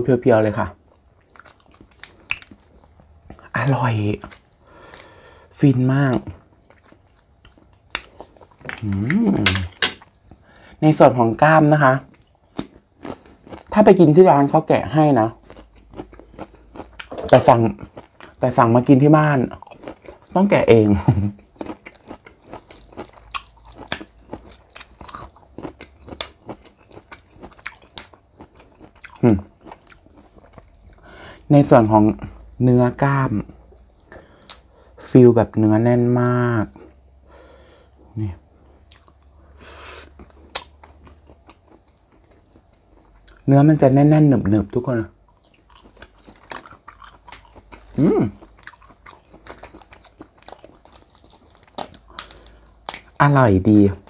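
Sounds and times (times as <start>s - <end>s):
close chewing: 0.9s - 3.6s, 12.1s - 14.4s, 15.2s - 18.5s, 19.5s - 20.5s, 21.3s - 31.1s, 45.2s - 54.0s
person humming mm: 8.8s - 9.6s, 48.0s - 48.4s
prawn shell cracking: 50.4s - 53.2s.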